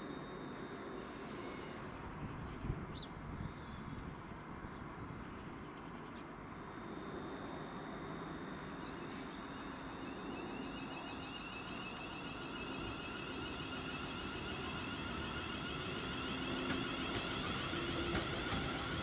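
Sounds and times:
train rumble: 6.7 - 19.0
high whining tones: 9.1 - 19.0.

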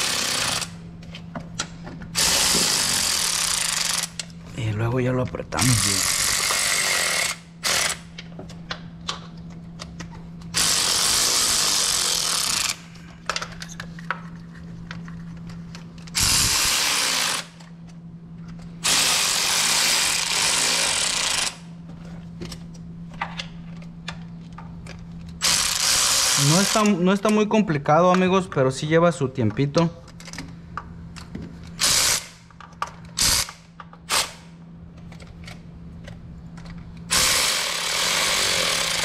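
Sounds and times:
cordless electric ratchet running: 0.0 - 0.8, 2.2 - 4.3, 5.6 - 8.1, 10.5 - 12.8, 16.1 - 17.7, 18.8 - 21.7, 25.4 - 27.0, 31.8 - 32.4, 33.2 - 34.4, 37.1 - 39.0
steady low hum: 0.0 - 39.0.

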